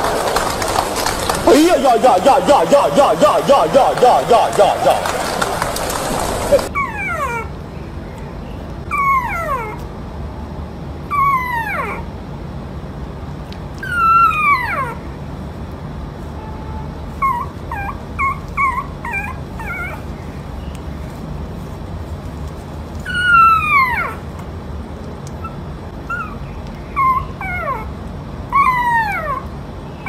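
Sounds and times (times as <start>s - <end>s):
puppy yipping: 5.1s - 7.5s, 8.8s - 9.9s, 11.1s - 12.1s, 13.8s - 15.0s, 17.1s - 20.4s, 23.0s - 24.3s, 25.3s - 30.0s
puppy whimpering and howling: 6.0s - 7.6s, 8.8s - 9.9s, 11.0s - 12.1s, 13.8s - 15.1s, 17.1s - 20.3s, 23.0s - 24.3s, 25.4s - 30.0s.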